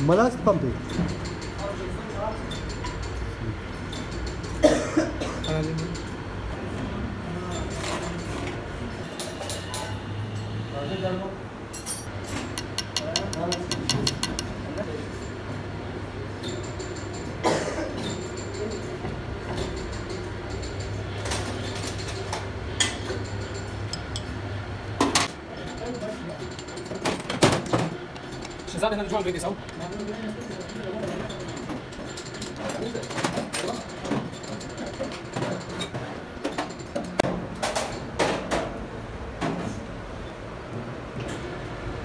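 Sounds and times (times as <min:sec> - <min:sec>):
metal parts knocking and scraping: 0:25.1 - 0:38.5.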